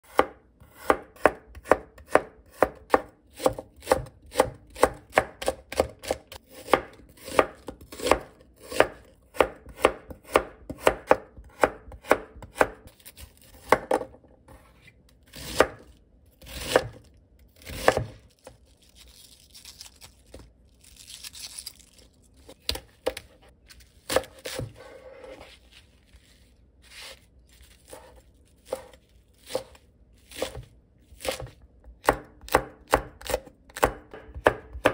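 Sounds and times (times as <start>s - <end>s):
knife chopping on cutting mat: 0.1s - 18.2s, 24.1s - 25.6s, 27.8s - 34.9s.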